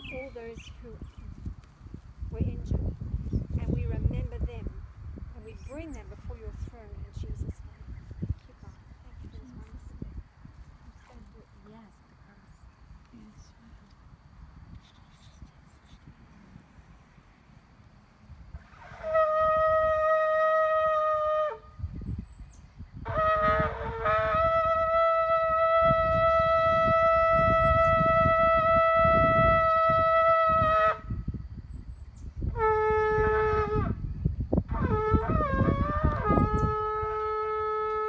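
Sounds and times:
animal horn blasts: 18.5s - 21.8s, 23.0s - 31.3s, 32.5s - 34.0s, 34.7s - 38.0s.

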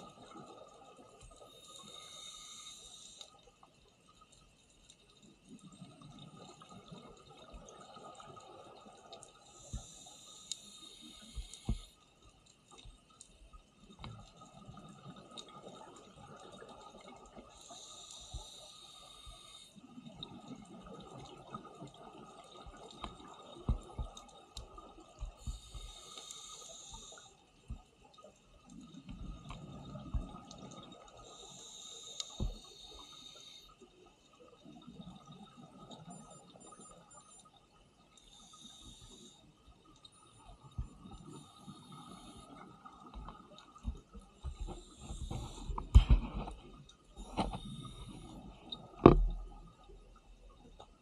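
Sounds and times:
faint clicks: 0.1s - 51.0s
exhaled bubbles hissing: 1.4s - 3.4s, 5.6s - 12.0s, 14.4s - 27.4s, 28.7s - 33.8s, 40.1s - 46.5s, 47.2s - 49.5s.

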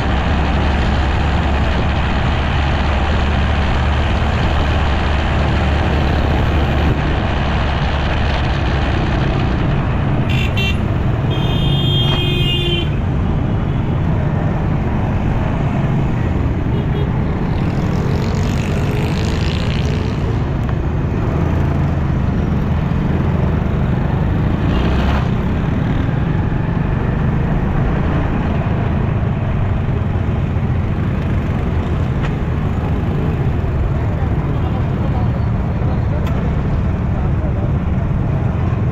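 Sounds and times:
city traffic noise: 0.0s - 38.9s
vehicle horn tooting: 10.3s - 13.0s.

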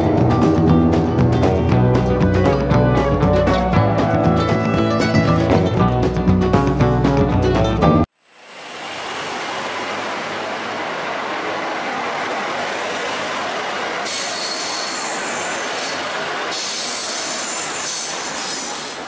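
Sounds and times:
train carriages rolling past: 8.6s - 19.0s
high wheel squeal: 11.8s - 19.0s
lower wheel squeal: 12.4s - 19.0s.

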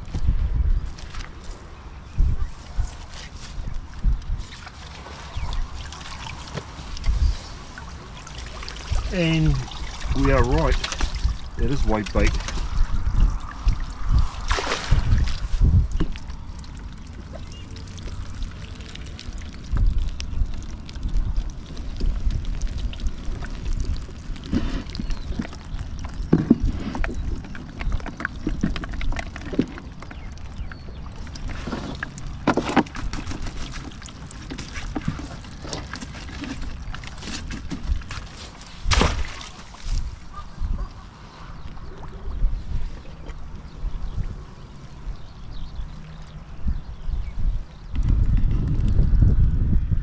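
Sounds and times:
wind rumbling on microphone: 0.0s - 50.0s
water splashing and pouring: 3.3s - 40.2s.

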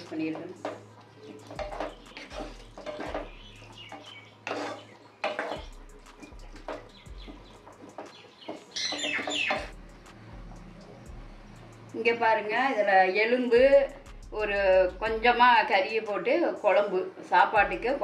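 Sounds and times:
spatula scraping pan: 0.0s - 9.8s.

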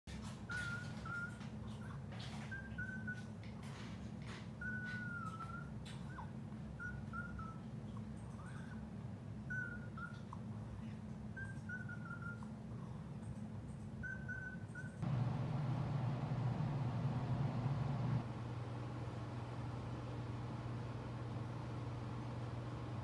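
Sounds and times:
steady low hum: 0.1s - 23.0s
dog whining: 0.2s - 13.2s, 14.0s - 15.1s.

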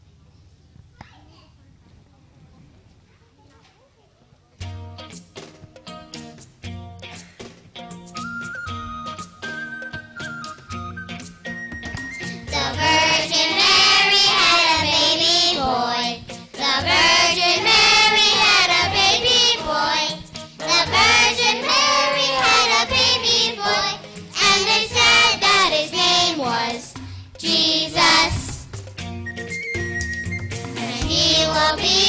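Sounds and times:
musical accompaniment: 4.6s - 32.0s
children singing: 12.5s - 28.5s, 30.8s - 32.0s.

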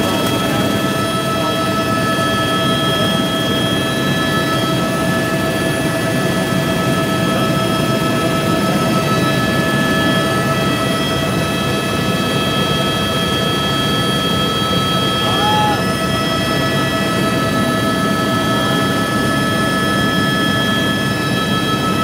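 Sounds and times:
engine and rotor noise: 0.0s - 22.0s
helicopter engine whine: 0.0s - 22.0s.

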